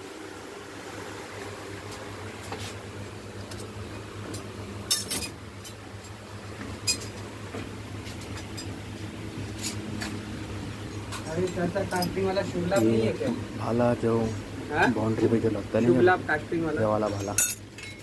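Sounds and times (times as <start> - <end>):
steady low hum: 0.0 - 18.0
metal ornaments clinking: 4.9 - 6.2, 6.8 - 7.3, 17.1 - 18.0.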